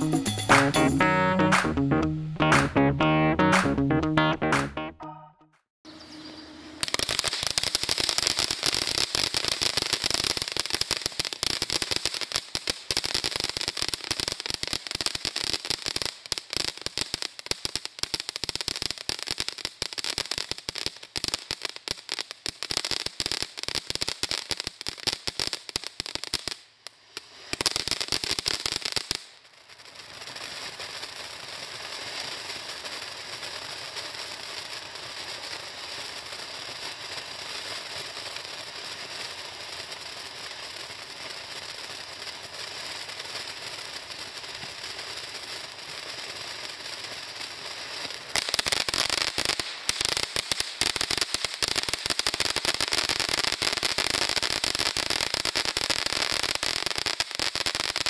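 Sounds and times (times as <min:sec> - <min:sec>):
firework crackling: 0:06.8 - 0:58.0
firework sizzling hiss: 0:24.5 - 0:58.0.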